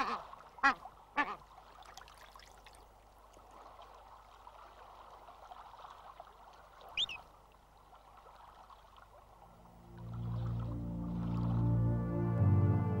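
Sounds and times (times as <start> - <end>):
water dabbling and lapping: 0.0 - 11.8
duckling peeping: 7.0 - 7.2.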